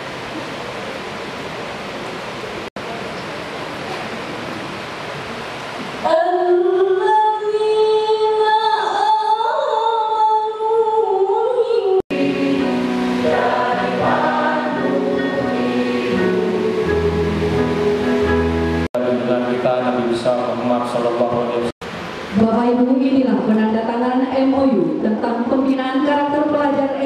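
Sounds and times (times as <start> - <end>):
choir singing held notes: 12.1 - 20.0
steady hiss: 12.1 - 23.1.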